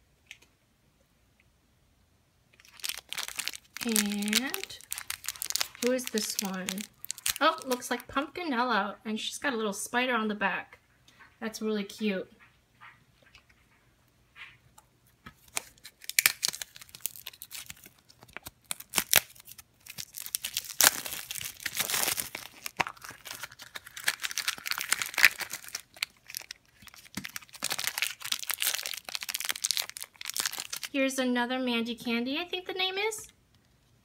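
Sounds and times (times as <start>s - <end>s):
crinkly wrapper torn and crumpled: 2.6s - 8.1s, 15.4s - 31.0s.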